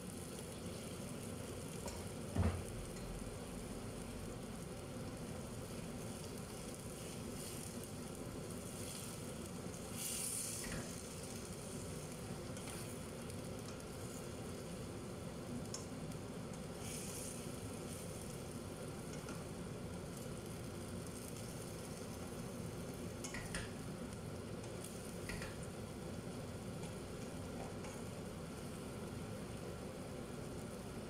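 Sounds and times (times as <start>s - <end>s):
food sizzling in pan: 0.0s - 31.0s
spatula clicking against pan: 23.2s - 23.7s.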